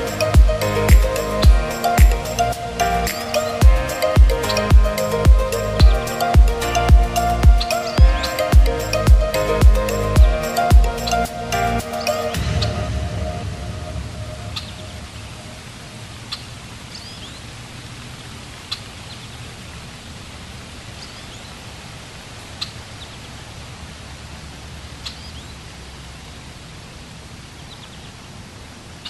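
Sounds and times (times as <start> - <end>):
low hum: 0.0 - 16.3
even rushing hiss: 0.0 - 19.2.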